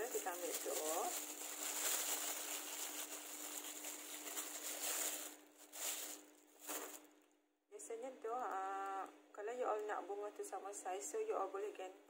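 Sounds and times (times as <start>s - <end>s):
plastic bag crinkling: 0.0s - 7.2s.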